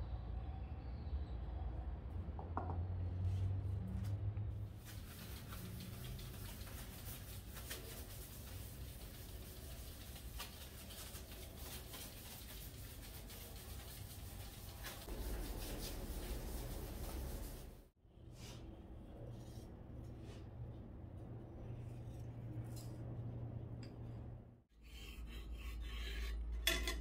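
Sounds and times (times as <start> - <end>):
hand rubbing on ceramic tiles: 4.8 - 20.6.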